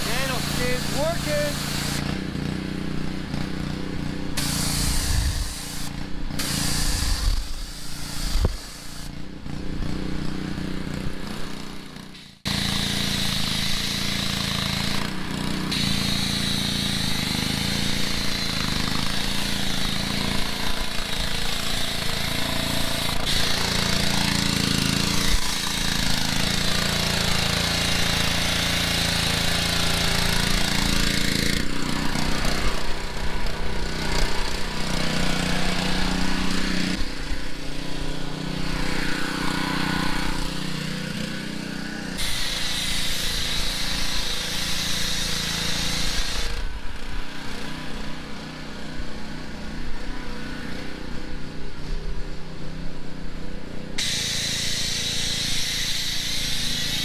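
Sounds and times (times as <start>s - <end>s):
foam cannon spray hiss: 0.0s - 2.1s, 4.4s - 9.1s, 15.7s - 33.2s, 42.2s - 46.6s, 54.0s - 57.0s
water spraying in spurts: 0.0s - 46.7s, 54.0s - 57.0s
pressure washer engine running: 0.0s - 57.0s.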